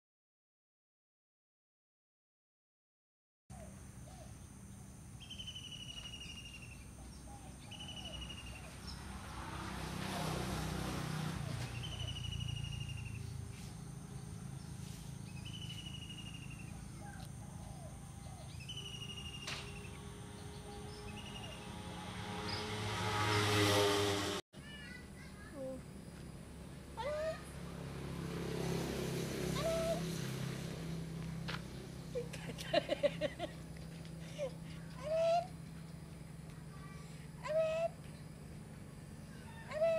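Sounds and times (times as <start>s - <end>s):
steady low hum: 3.5s - 9.8s, 10.9s - 24.4s, 25.0s - 39.9s
bird whistled call: 5.2s - 6.8s, 7.6s - 8.7s, 11.8s - 13.2s, 15.4s - 17.2s, 18.4s - 20.0s.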